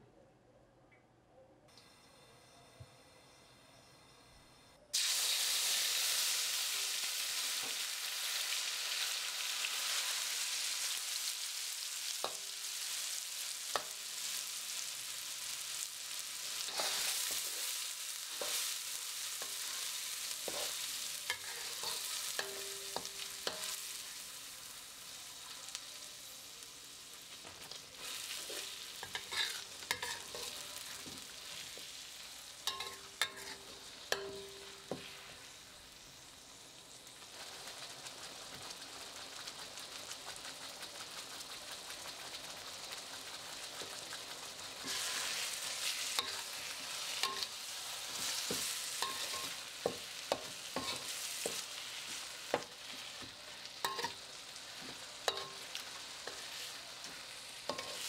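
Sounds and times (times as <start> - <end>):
spice paste sizzling in hot oil: 4.9 - 58.0
metal spatula scraping wok: 16.5 - 24.0, 27.5 - 32.0, 32.6 - 35.6, 42.5 - 58.0.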